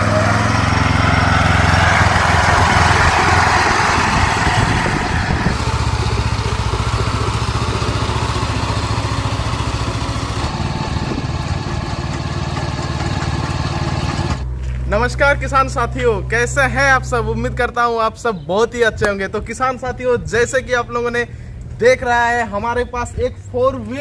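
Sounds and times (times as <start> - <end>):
power weeder engine running: 0.0 - 14.8.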